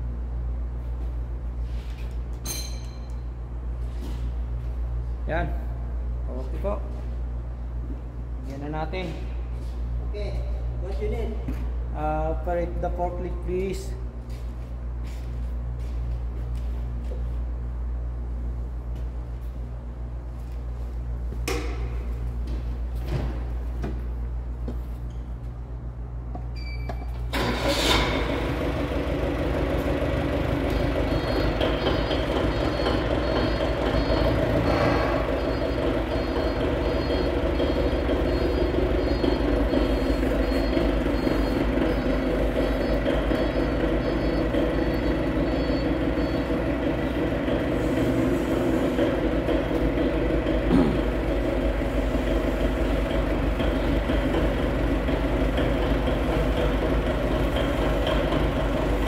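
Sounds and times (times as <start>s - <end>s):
forklift engine running: 14.2s - 59.0s
high-pitched warning beeper: 30.7s - 46.6s.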